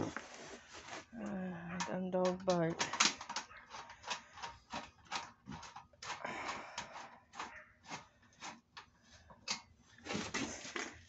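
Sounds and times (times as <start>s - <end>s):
screwdriver turning screw in metal: 1.8s - 6.2s.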